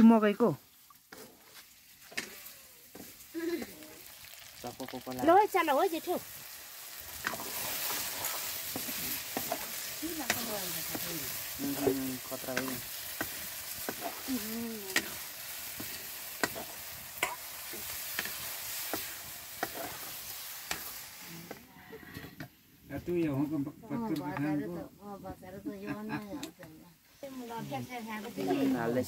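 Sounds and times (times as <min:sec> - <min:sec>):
meat sizzling in a wok: 0:00.0 - 0:21.8, 0:27.0 - 0:29.0
metal ladle scraping a pan: 0:07.1 - 0:14.3, 0:15.0 - 0:21.3.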